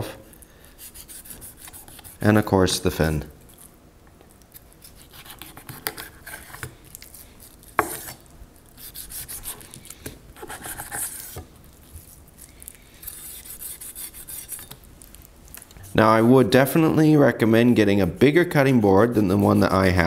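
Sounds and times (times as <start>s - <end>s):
knife sawing through raw fish: 0.8s - 2.2s, 4.8s - 11.4s, 12.0s - 14.8s
blade scraping plastic cutting board: 7.8s - 8.2s.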